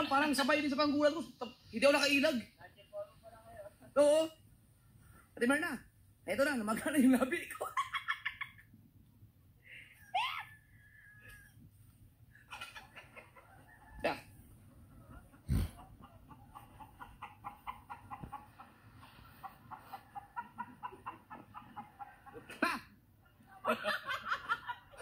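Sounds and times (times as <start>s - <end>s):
chickens clucking: 12.3s - 22.6s.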